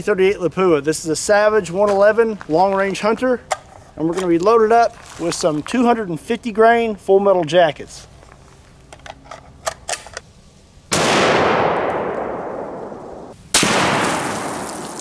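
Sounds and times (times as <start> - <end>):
rifle shots echoing: 10.9 - 15.0.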